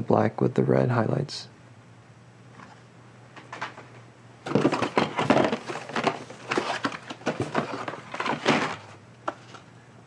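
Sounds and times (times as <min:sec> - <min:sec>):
toy packages rustling and clacking: 0:04.4 - 0:09.7.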